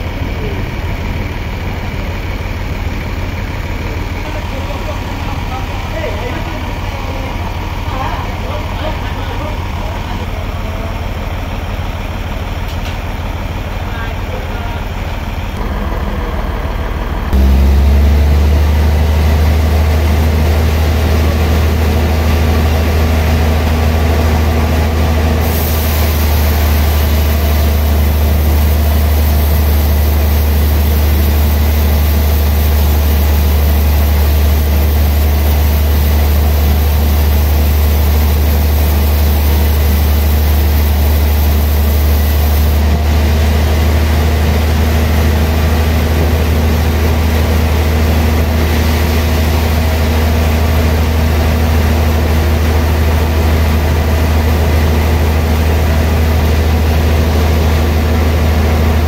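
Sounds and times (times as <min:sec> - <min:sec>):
sawmill machine hum: 0:00.0 - 0:59.0
high hiss: 0:25.4 - 0:42.8.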